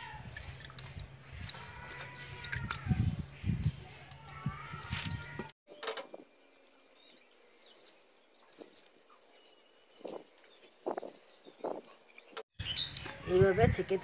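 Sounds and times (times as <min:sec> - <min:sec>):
water splashing and dripping: 0:00.0 - 0:03.1.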